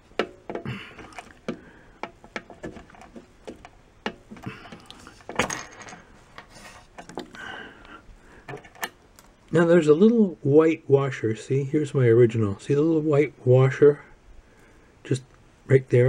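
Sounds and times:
light plastic clicks and rubbing: 0:00.2 - 0:07.4.

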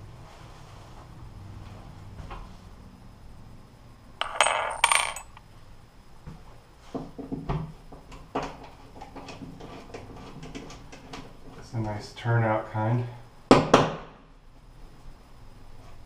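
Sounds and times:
metal hardware clinking: 0:04.2 - 0:05.4.

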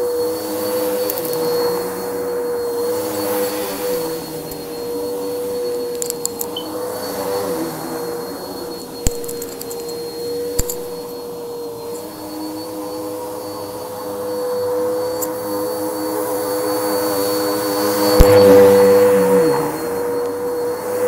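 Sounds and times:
vacuum cleaner on carpet: 0:00.0 - 0:21.0.

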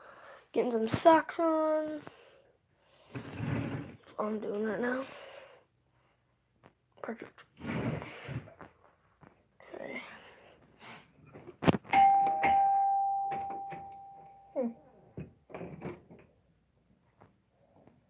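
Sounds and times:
bell-like chime: 0:12.0 - 0:14.7.

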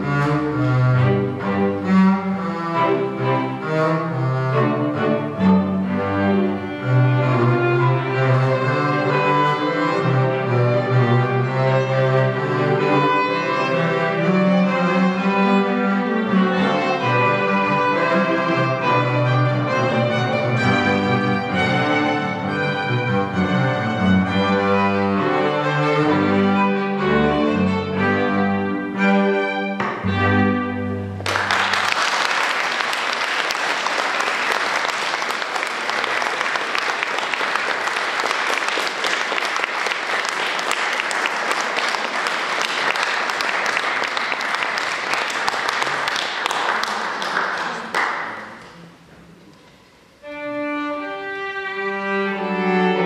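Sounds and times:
double bass and string quartet: 0:00.0 - 0:32.0, 0:48.0 - 0:53.0
audience applause: 0:31.2 - 0:48.6.

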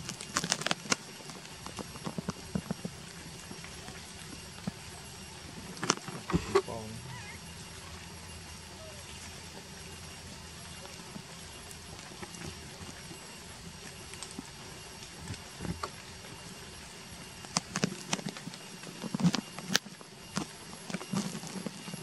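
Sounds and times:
dry leaves crackling underfoot: 0:00.0 - 0:16.5.

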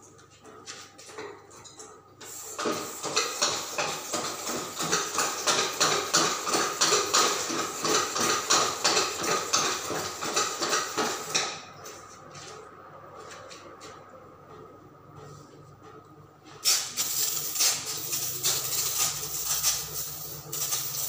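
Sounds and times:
metallic pump strokes with hiss: 0:16.6 - 0:21.0.

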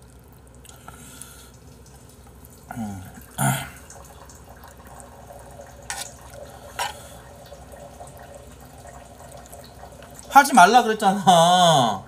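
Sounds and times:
eating with metal spoon: 0:05.8 - 0:07.2.

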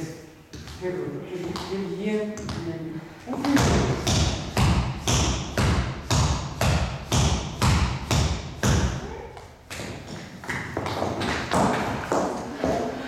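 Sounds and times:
tap shoes on hard floor: 0:03.3 - 0:12.9.

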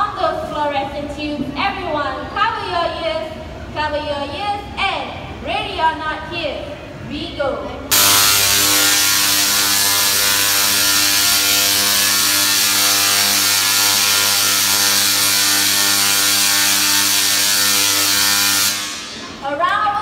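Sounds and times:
tesla coil sparks buzzing: 0:07.9 - 0:19.4.

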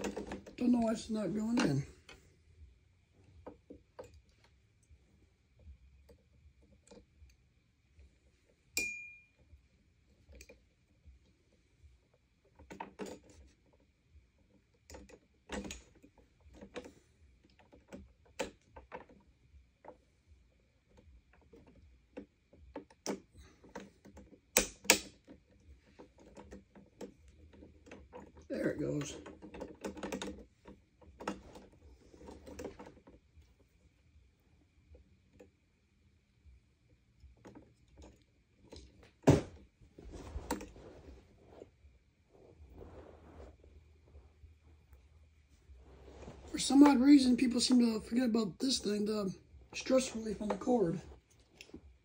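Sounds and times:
clicks and rattles of handling: 0:00.0 - 0:02.2, 0:12.4 - 0:20.1, 0:20.8 - 0:33.8
metallic ping: 0:08.8 - 0:09.4.

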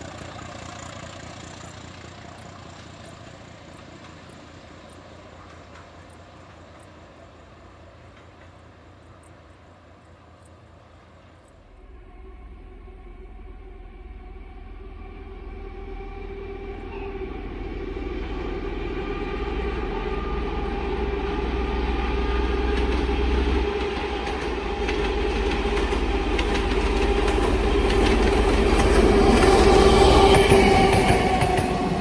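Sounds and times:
train approaching with droning hum: 0:00.0 - 0:32.0.

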